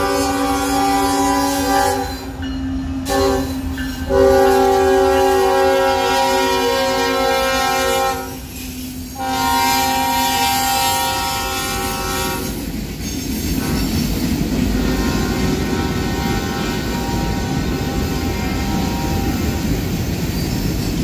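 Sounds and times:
locomotive air horn blast: 0.0 - 2.3, 3.0 - 8.5, 9.1 - 12.6, 14.9 - 19.7.

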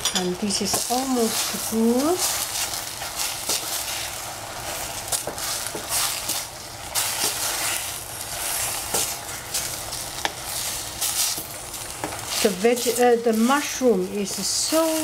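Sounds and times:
vegetables sizzling in a pan: 0.0 - 15.0
wooden spatula scraping pan: 0.6 - 15.0.

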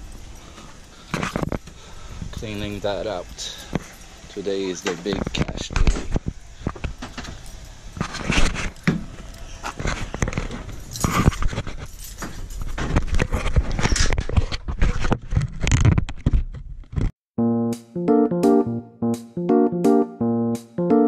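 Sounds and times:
camera handling rubbing and scraping: 8.0 - 8.8, 9.6 - 11.9, 12.6 - 17.1.

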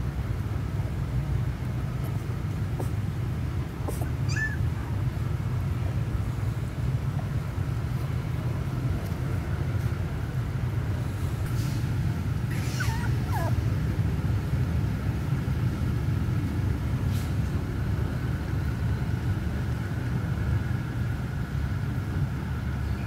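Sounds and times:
low background rumble: 0.0 - 23.0
puppy squeak: 3.9 - 4.7, 12.5 - 13.6.

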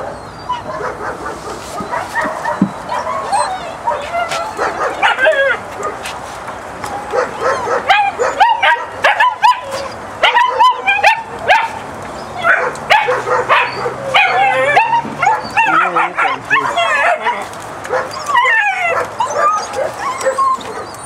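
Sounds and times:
puppies whining and yelping: 0.0 - 6.0, 6.9 - 21.0.

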